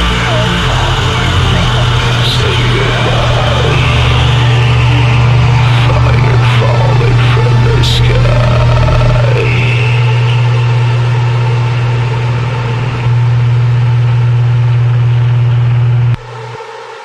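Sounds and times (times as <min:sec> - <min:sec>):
low electronic drone: 0:00.0 - 0:17.0.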